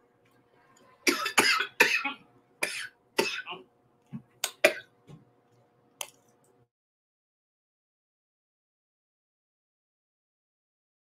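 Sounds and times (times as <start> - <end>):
woman coughing: 1.1 - 3.7.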